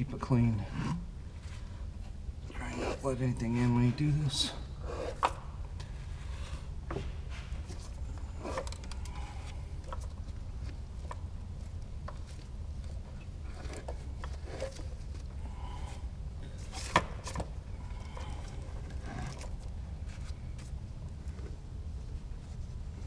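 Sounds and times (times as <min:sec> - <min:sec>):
steady low hum: 0:00.0 - 0:23.0
handling clicks and scrapes: 0:04.8 - 0:15.4, 0:16.6 - 0:21.6.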